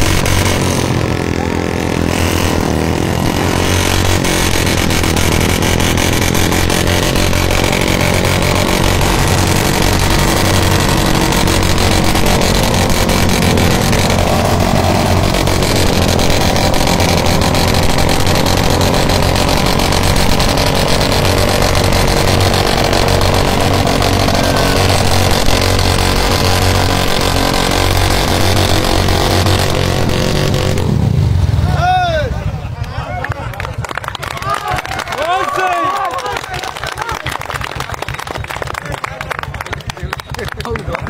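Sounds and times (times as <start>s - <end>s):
rear wheel spinning in dirt: 0.0s - 30.9s
motorcycle engine at high revs: 0.0s - 31.7s.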